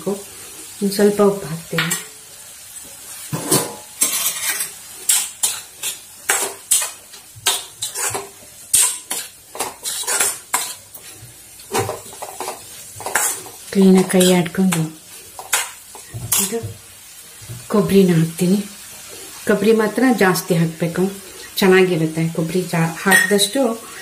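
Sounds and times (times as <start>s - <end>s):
metal spatula scraping a pan: 3.2s - 16.7s.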